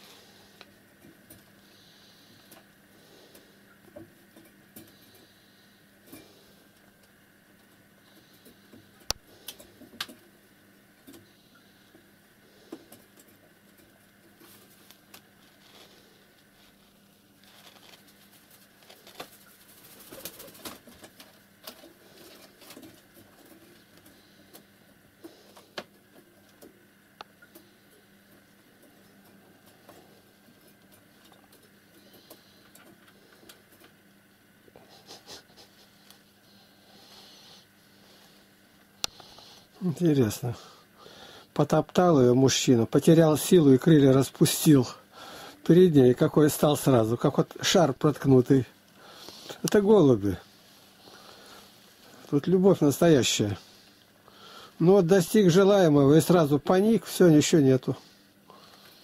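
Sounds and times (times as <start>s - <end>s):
pigeons clicking and rustling: 17.8s - 24.6s.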